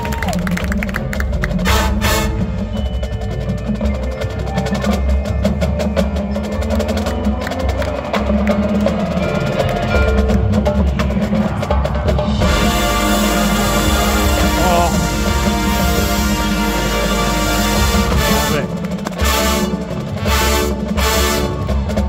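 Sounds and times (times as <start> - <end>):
sustained wind chords: 12.4 - 21.8
dry clicking percussion strikes: 17.4 - 22.0.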